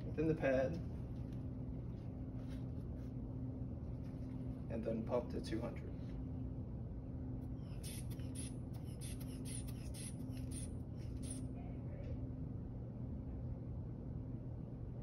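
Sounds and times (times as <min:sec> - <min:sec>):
inflation bulb pumping airy hisses: 0:07.7 - 0:11.4.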